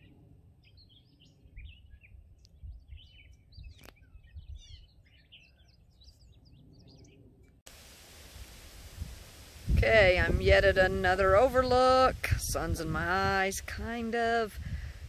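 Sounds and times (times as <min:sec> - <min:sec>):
songbirds chirping and singing: 0:00.0 - 0:07.6.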